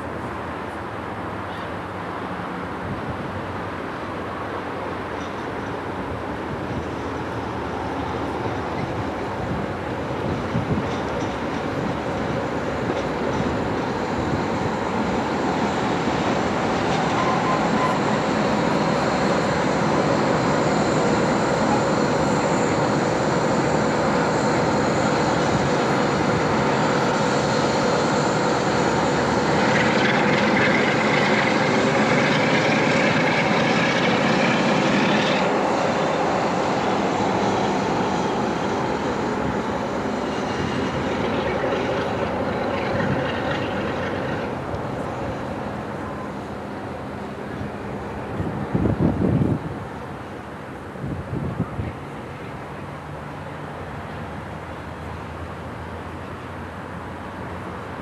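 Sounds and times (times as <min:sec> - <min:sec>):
diesel locomotive engine drone: 0:00.0 - 0:58.0
high-pitched whine: 0:11.0 - 0:48.5.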